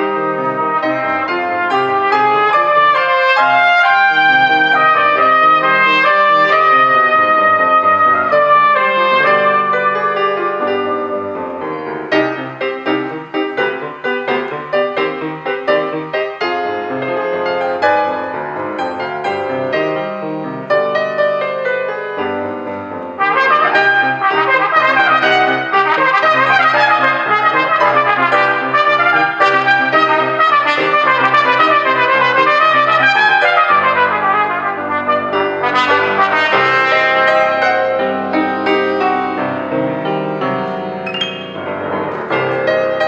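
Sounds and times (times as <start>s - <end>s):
cornet solo: 0.0s - 14.3s, 23.2s - 43.0s
piano playing: 0.0s - 43.0s.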